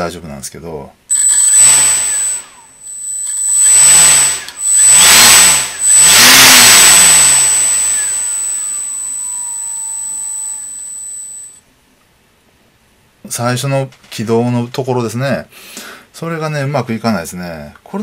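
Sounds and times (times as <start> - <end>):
small motor spinning propeller: 1.2 - 11.3.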